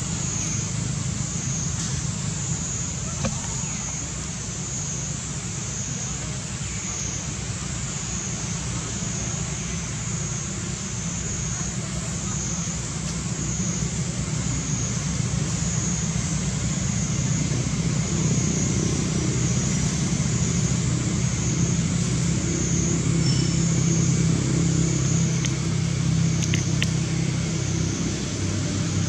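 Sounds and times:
high wavering hiss: 0:00.0 - 0:29.0
low engine rumble: 0:00.0 - 0:29.0.

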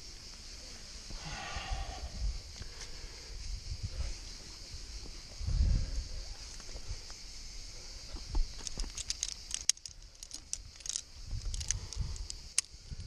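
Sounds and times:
carabiners clinking on chain: 0:08.5 - 0:13.0.

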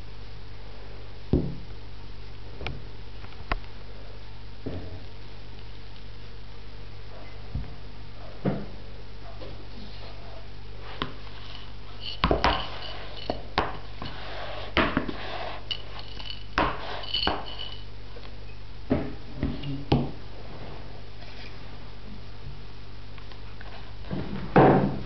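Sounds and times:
steady low hum: 0:00.0 - 0:25.0
glass bowl knocking and clinking: 0:12.0 - 0:13.8, 0:15.7 - 0:17.8.

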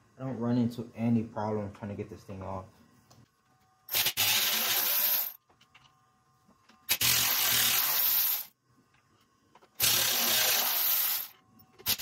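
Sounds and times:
electric ratchet whirring: 0:03.9 - 0:05.4, 0:06.9 - 0:08.5, 0:09.8 - 0:12.0.

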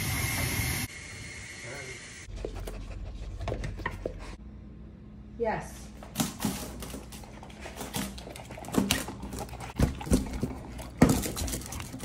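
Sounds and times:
dogs chewing and lapping: 0:06.7 - 0:12.0.

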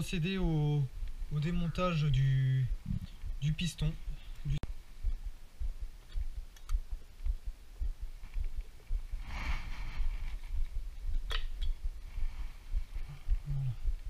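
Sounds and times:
light clicks: 0:06.0 - 0:07.4.

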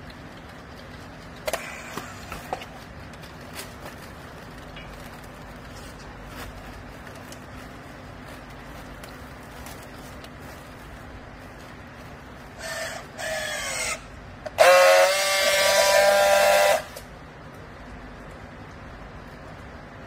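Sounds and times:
low machine hum: 0:00.0 - 0:20.0.

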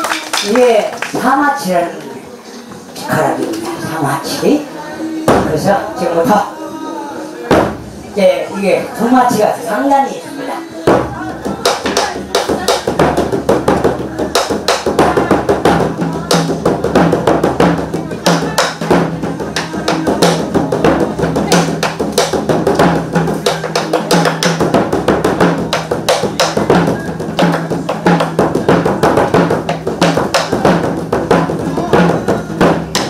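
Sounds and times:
accompanying music: 0:00.0 - 0:33.0
barrel drums beaten with sticks: 0:05.3 - 0:05.7, 0:07.5 - 0:08.0, 0:10.9 - 0:33.0.

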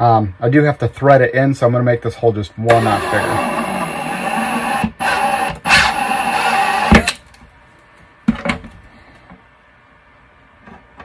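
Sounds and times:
cordless drill drilling plastic: 0:02.7 - 0:07.2.

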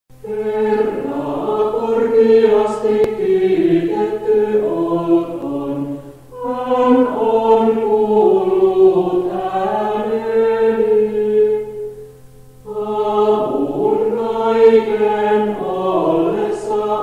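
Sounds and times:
mixed choir singing a hymn: 0:00.2 - 0:12.0, 0:12.6 - 0:17.0
faint cassette hum: 0:00.8 - 0:09.8.

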